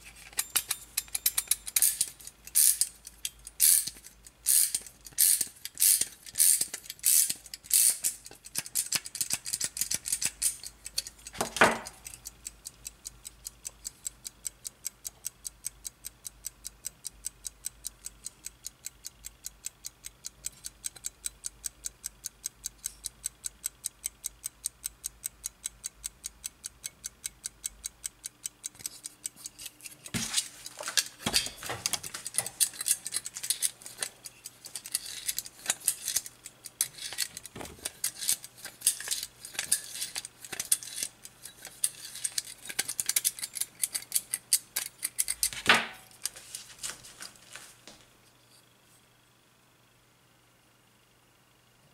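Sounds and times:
clock key winding clicks: 0.0 - 45.6.

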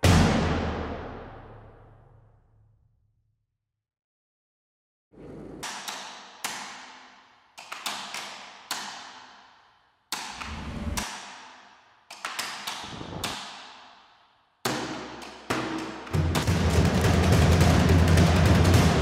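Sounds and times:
deep boom: 0.0 - 2.0
reverberant percussion hits: 0.0 - 2.2, 14.7 - 19.0.

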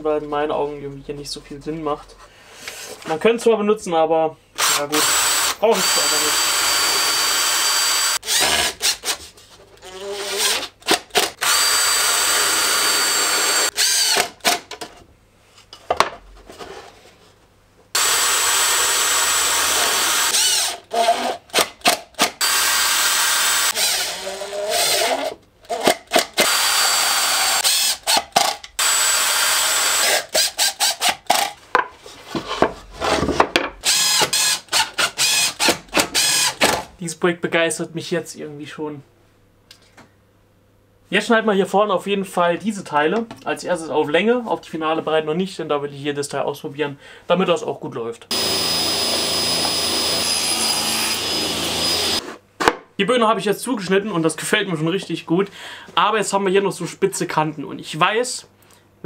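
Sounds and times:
cordless drill motor whine: 4.6 - 8.7, 11.4 - 14.3, 18.0 - 21.4, 22.4 - 25.3, 26.4 - 28.2, 28.8 - 30.2, 33.8 - 36.6, 48.3 - 52.2.

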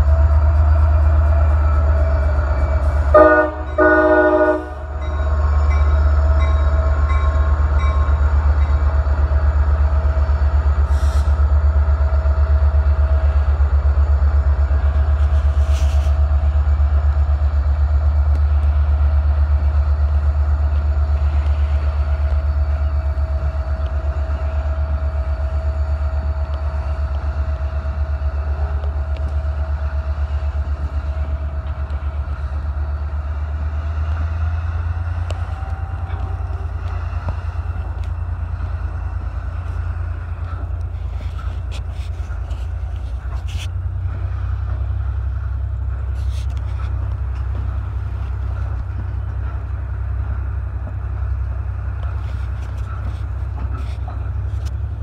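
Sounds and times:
freight train rumbling past: 0.0 - 55.0
train horn: 1.7 - 5.0, 35.2 - 37.7.

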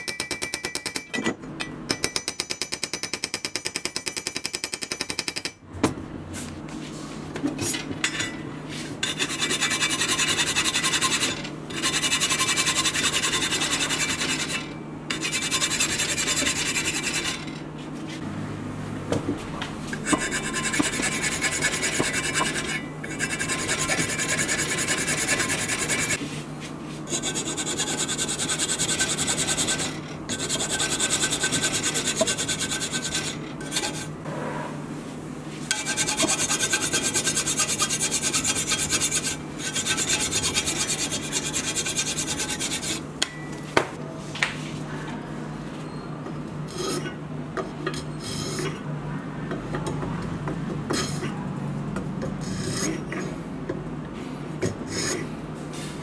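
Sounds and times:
file rasping on wood: 9.1 - 17.4, 20.0 - 26.2, 27.1 - 34.1, 35.8 - 43.0.

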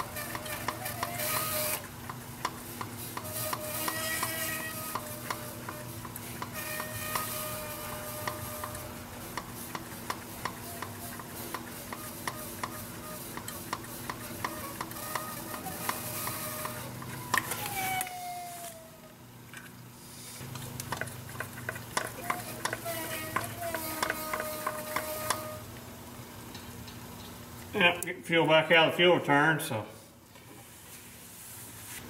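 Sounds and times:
whine of escaping air: 3.0 - 9.6, 10.3 - 19.2
crackling sputtering ticks: 9.4 - 17.4, 20.8 - 22.8.

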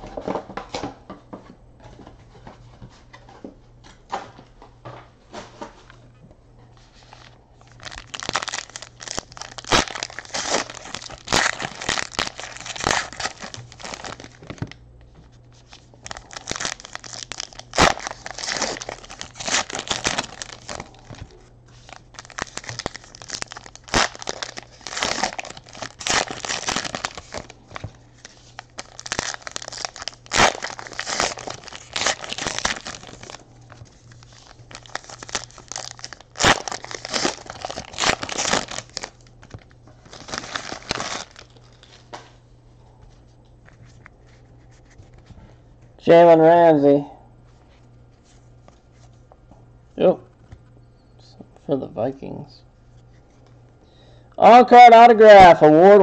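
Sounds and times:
wrappers tearing and crinkling: 7.1 - 14.8, 15.5 - 42.1.

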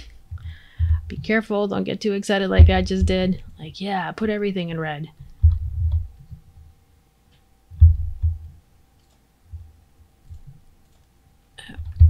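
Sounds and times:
low dull thumps: 0.0 - 1.4, 2.5 - 3.6, 5.2 - 6.7, 7.7 - 8.6
faint high hum: 0.0 - 12.0
computer mouse clicks: 9.0 - 11.2.

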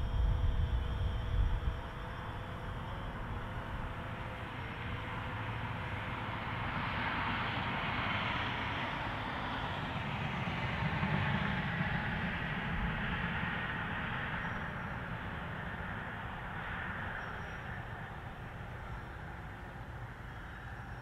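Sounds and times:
drone propellers buzzing: 0.0 - 21.0.

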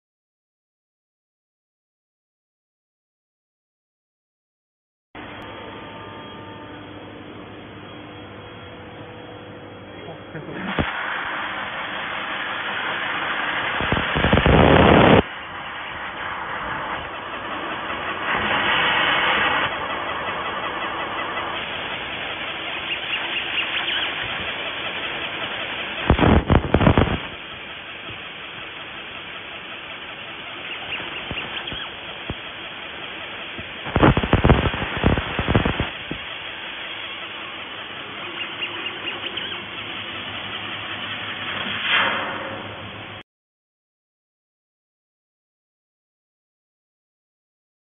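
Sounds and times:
laser cutting hiss: 10.6 - 42.7
loud rapid crackling: 10.7 - 42.0.

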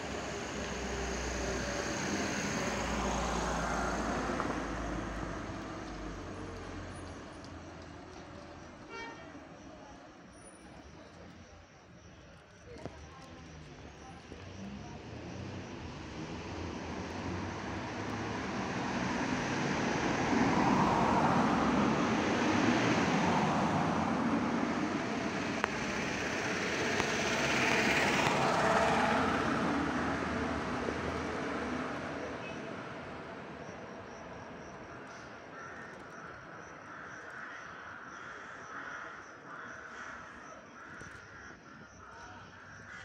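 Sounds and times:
motor vehicle passing by: 0.0 - 7.4, 14.2 - 35.4.

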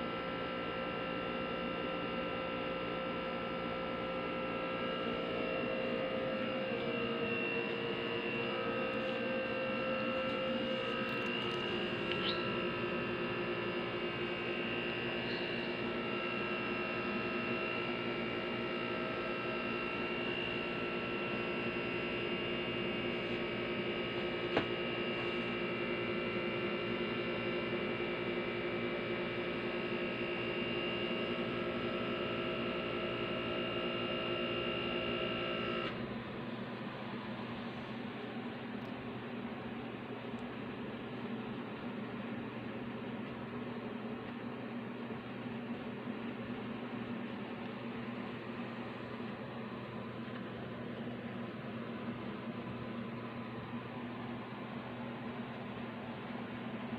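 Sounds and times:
mechanical hum: 0.0 - 56.9
click: 10.2 - 12.5, 40.3 - 40.5.

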